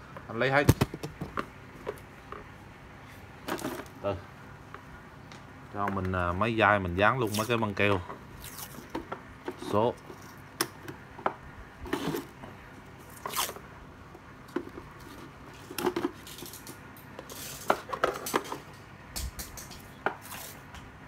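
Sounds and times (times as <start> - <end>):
plastic cases knocking: 0.6 - 1.5
masking tape ripping: 13.1 - 13.6.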